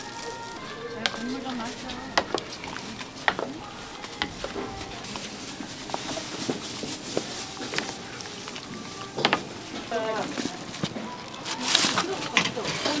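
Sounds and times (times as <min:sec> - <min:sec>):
food sizzling on iron plate: 0:00.0 - 0:10.3.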